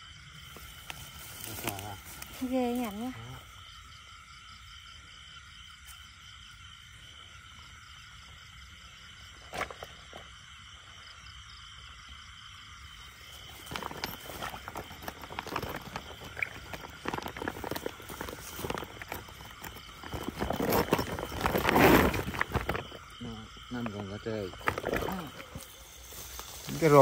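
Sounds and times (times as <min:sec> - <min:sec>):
frogs croaking: 0:00.0 - 0:27.0
insects chirping: 0:00.0 - 0:27.0
close rustles and knocks: 0:13.4 - 0:23.2.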